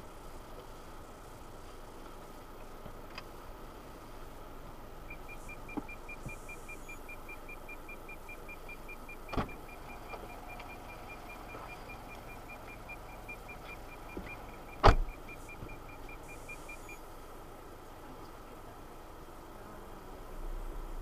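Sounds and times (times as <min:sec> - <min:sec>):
road noise inside car: 0:00.0 - 0:21.0
faint high pulsing tone: 0:05.0 - 0:21.0.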